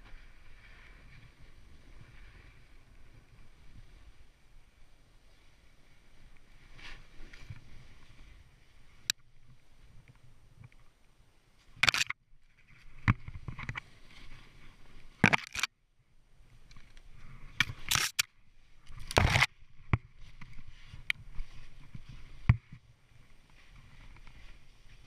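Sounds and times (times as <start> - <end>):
snowboard swishing and scraping on snow: 0.0 - 10.3, 12.5 - 15.2, 19.5 - 25.0
wind rumble on microphone: 0.0 - 10.9.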